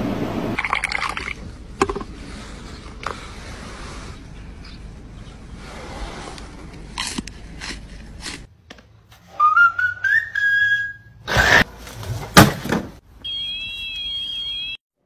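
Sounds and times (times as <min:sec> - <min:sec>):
rising whistle: 0:09.3 - 0:11.3.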